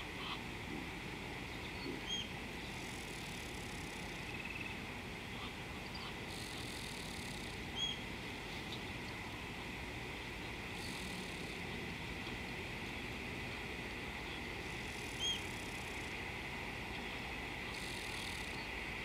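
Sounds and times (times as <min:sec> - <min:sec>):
low background rush: 0:00.0 - 0:19.0
bird calls: 0:01.5 - 0:08.9, 0:14.2 - 0:16.1.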